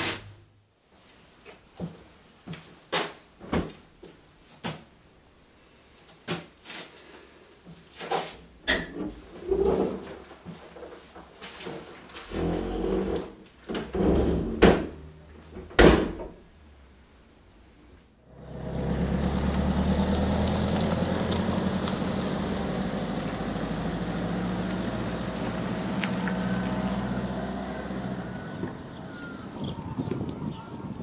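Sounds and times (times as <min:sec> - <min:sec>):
door knocks and bangs: 0:15.6 - 0:16.4.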